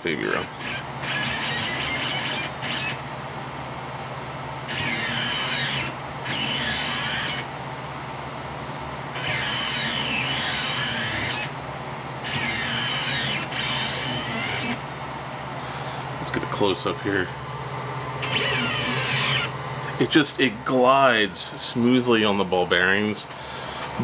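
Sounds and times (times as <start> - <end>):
stepper motors whining: 0.0 - 7.9, 8.9 - 17.4, 18.0 - 21.6
steady low hum: 0.0 - 24.0.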